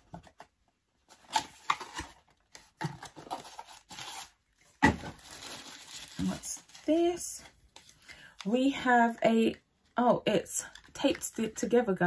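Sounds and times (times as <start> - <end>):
cardboard tearing and rustling: 1.1 - 6.9.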